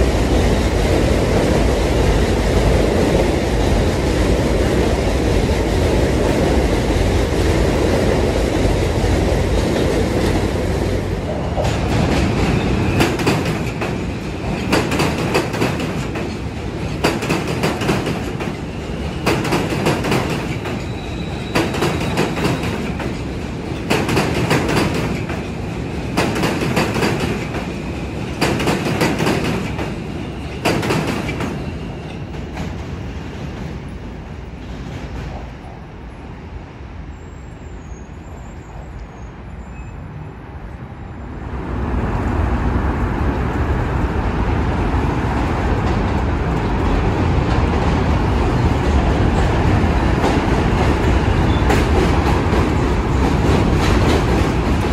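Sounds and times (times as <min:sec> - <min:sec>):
subway train rumble: 0:00.0 - 0:54.9
wheels clacking over rail joints: 0:09.4 - 0:32.8.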